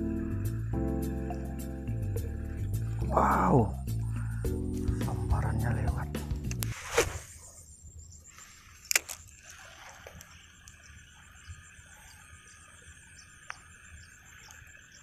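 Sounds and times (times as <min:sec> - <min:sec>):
light regular ticking: 0:00.0 - 0:06.7
steady high buzz: 0:00.0 - 0:06.8.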